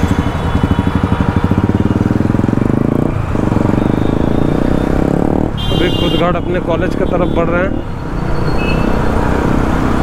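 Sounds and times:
motorcycle engine revving: 0.0s - 7.0s.

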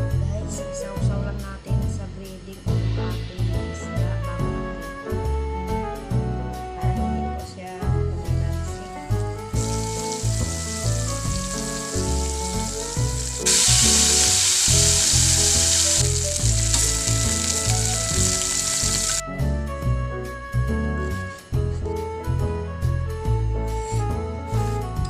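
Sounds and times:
background music with bass: 0.0s - 25.0s
fish sizzling in hot oil: 9.1s - 19.2s.

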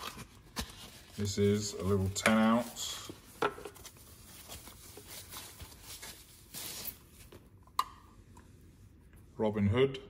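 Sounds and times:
wrapping rustling and crinkling: 0.0s - 7.5s.

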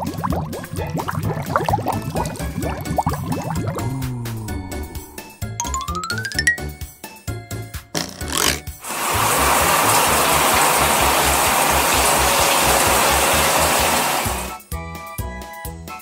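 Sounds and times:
children's music backing beat: 5.6s - 6.9s
shower water spraying: 8.8s - 14.6s.

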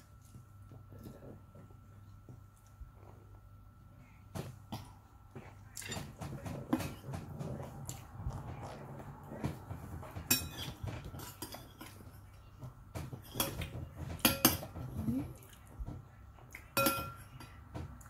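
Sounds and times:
chewing food: 4.8s - 12.6s, 14.9s - 16.8s
metal spoon clinking on dishes: 10.2s - 12.2s, 13.2s - 14.8s, 16.7s - 17.6s.

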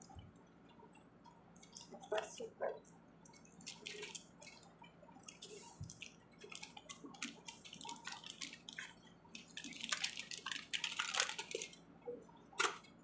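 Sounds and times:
foil wrapper crinkling: 3.4s - 11.8s.

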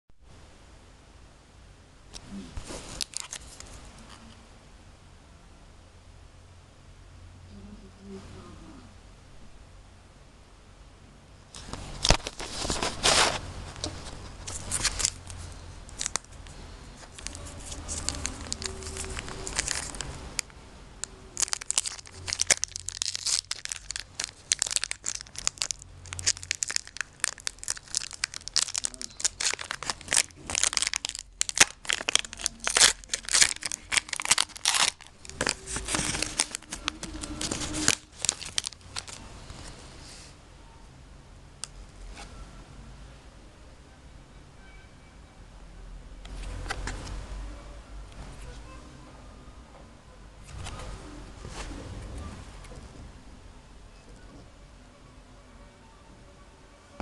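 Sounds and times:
foil wrapper crinkling and tearing: 2.8s - 3.8s, 14.4s - 16.4s, 17.0s - 39.2s.

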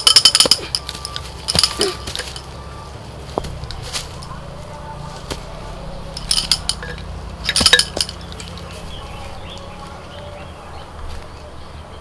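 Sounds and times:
sharp clinks: 0.0s - 2.7s, 6.1s - 9.1s
low steady hum: 0.0s - 12.0s.

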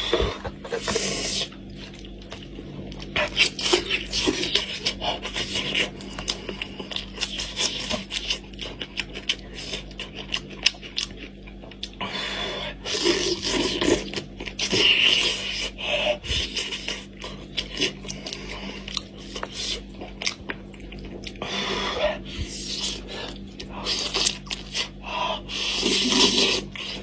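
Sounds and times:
wet chewing and lip-smacking: 1.3s - 12.0s, 16.3s - 21.4s, 22.2s - 25.0s.

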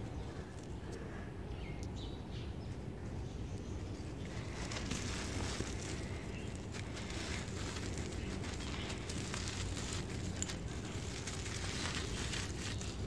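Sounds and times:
cement crust crackling: 3.6s - 13.0s.

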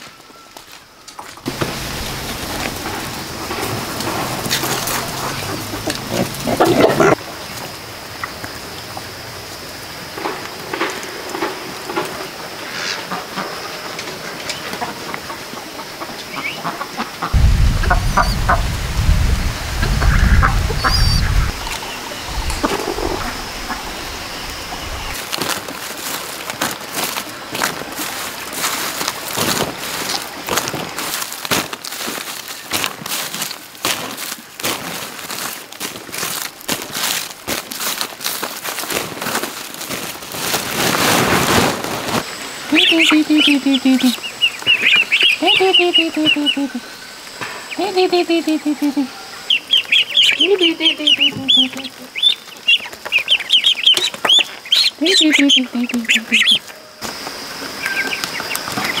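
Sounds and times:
poultry clucking: 2.8s - 7.2s, 14.5s - 18.6s, 19.8s - 25.2s, 42.7s - 46.8s, 47.7s - 56.7s
loud low rumble: 17.4s - 25.2s.

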